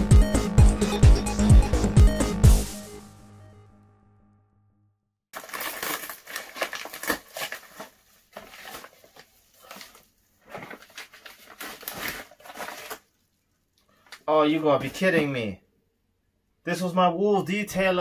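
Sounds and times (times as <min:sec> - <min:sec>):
paper crinkling: 0:05.3 - 0:15.3
paper envelope tearing: 0:05.4 - 0:13.1.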